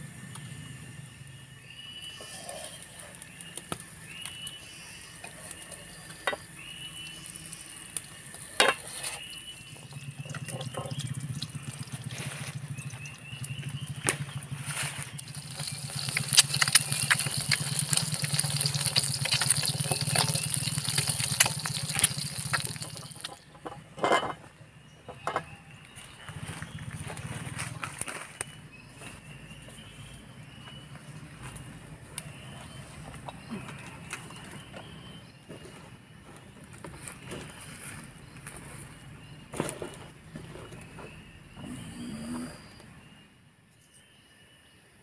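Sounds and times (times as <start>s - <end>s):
cicadas droning: 0.0s - 45.0s
eggs sizzling in oil: 2.2s - 13.6s, 15.1s - 23.4s.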